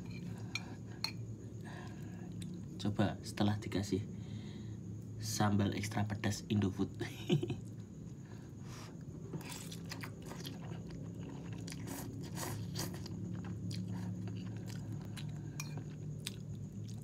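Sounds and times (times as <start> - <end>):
steady low hum: 0.0 - 17.0
person chewing: 9.4 - 17.0.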